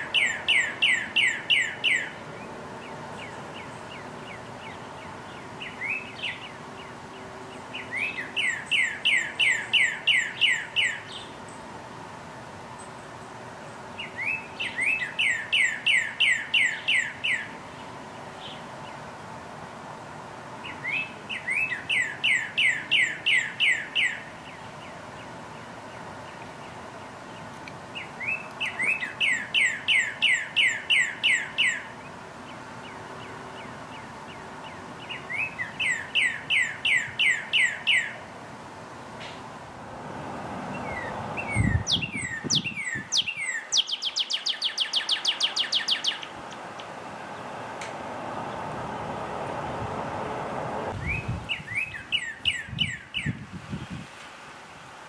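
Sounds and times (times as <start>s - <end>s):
cardinal whistled song: 0.0s - 2.2s, 7.8s - 11.1s, 14.0s - 17.5s, 40.8s - 46.3s, 51.0s - 53.4s.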